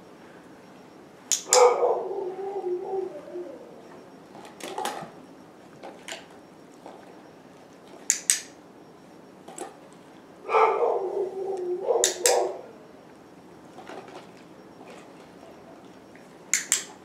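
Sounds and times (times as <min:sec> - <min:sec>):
dog drawn-out vocal sound: 0:10.5 - 0:12.8.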